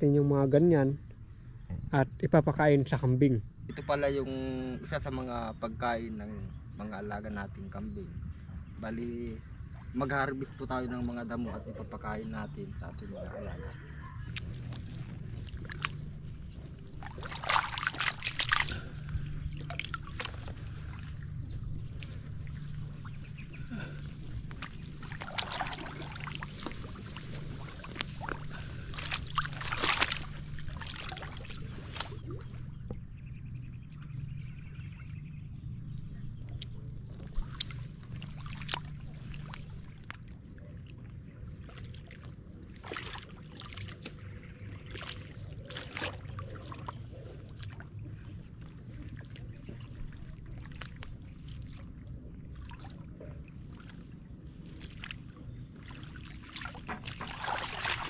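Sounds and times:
low hum: 0:03.1 - 0:58.0
water sloshing and splashing: 0:12.3 - 0:35.2, 0:35.8 - 0:58.0.

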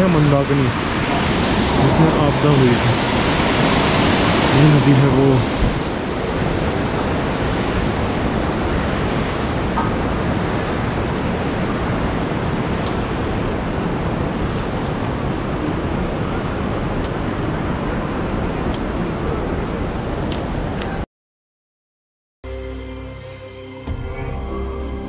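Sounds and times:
river rushing over rocks: 0:00.0 - 0:18.7.

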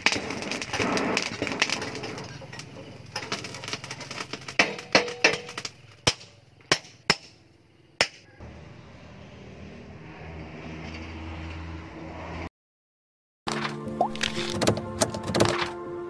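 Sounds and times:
background music: 0:13.5 - 0:16.0.

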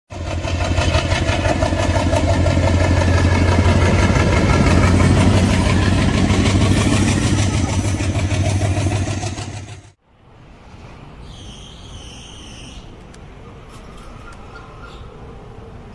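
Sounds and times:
train coaches rolling by: 0:00.1 - 0:10.0
diesel locomotive engine drone: 0:00.1 - 0:11.2.

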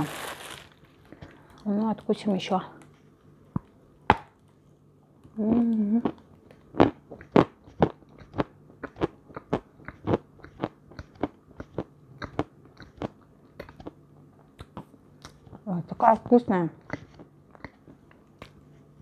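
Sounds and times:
person humming mmm: 0:05.4 - 0:06.2
crunchy chewing: 0:06.0 - 0:15.6, 0:16.8 - 0:18.6.

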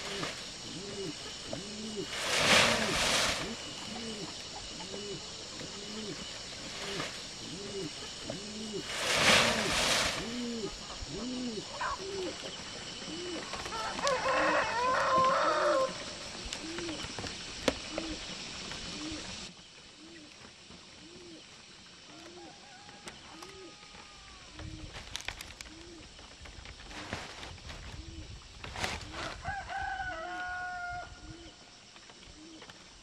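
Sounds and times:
background hiss: 0:00.0 - 0:33.0
brief rush of noise: 0:02.1 - 0:04.0, 0:08.8 - 0:10.5
rooster crowing: 0:13.7 - 0:16.0, 0:22.4 - 0:24.2, 0:29.4 - 0:31.2.

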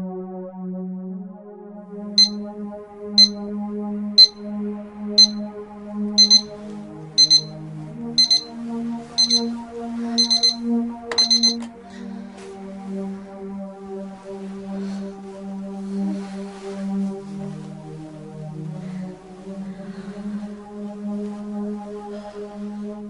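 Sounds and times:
soft background music: 0:00.0 - 0:23.0
alarm clock beeping: 0:02.2 - 0:02.4, 0:03.2 - 0:03.4, 0:04.2 - 0:04.4, 0:05.2 - 0:05.5, 0:06.2 - 0:06.6, 0:07.2 - 0:07.6, 0:08.2 - 0:08.5, 0:09.2 - 0:09.5, 0:10.2 - 0:11.7
alarm clock switch click: 0:02.2 - 0:02.4, 0:03.2 - 0:03.4, 0:04.2 - 0:04.4, 0:05.2 - 0:05.5, 0:06.2 - 0:06.5, 0:07.2 - 0:07.5, 0:08.2 - 0:08.5, 0:09.2 - 0:09.5, 0:10.2 - 0:11.7.

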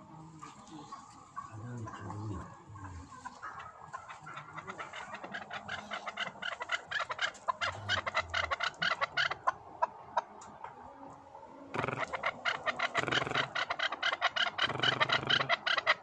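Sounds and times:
partridge calling sharp notes: 0:11.8 - 0:16.0.

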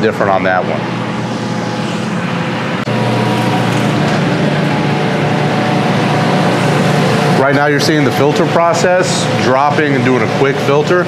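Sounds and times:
filter pump humming: 0:00.0 - 0:11.0.

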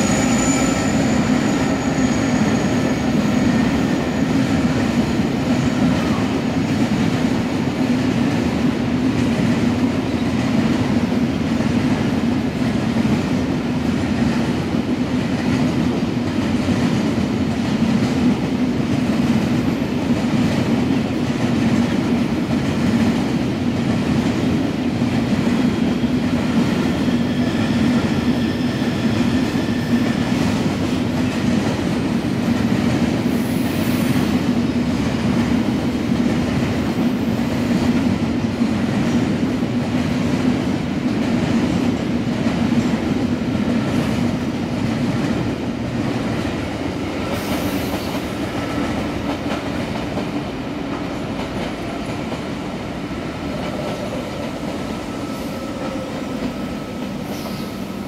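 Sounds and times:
faint wheel squeal: 0:00.0 - 0:04.4
passenger train pulling in: 0:00.0 - 0:58.0
train wheels rumbling on rails: 0:00.0 - 0:58.0.

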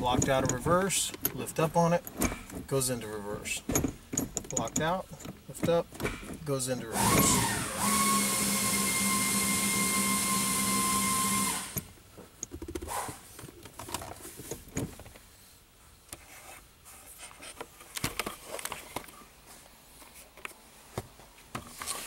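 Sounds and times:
light clicks and knocks: 0:00.0 - 0:02.8, 0:03.6 - 0:06.4.

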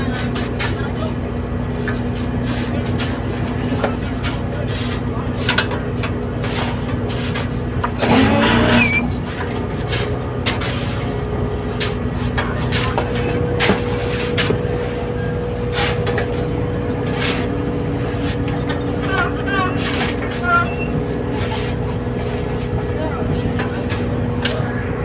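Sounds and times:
boat engine running: 0:00.0 - 0:25.0.

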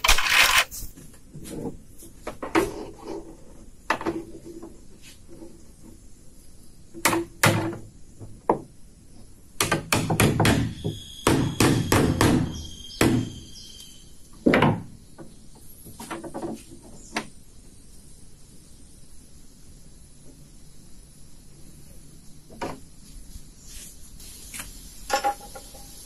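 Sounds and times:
hammer blows on wood: 0:09.6 - 0:13.5.

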